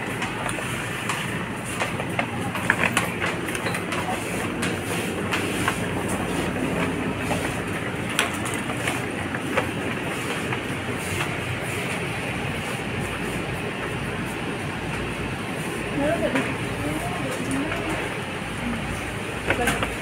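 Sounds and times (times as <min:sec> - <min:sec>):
store machinery hum: 0:00.0 - 0:20.0.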